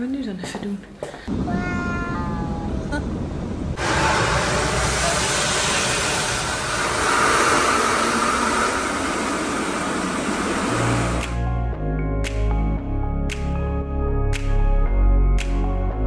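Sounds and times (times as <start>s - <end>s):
music: 10.8s - 16.0s.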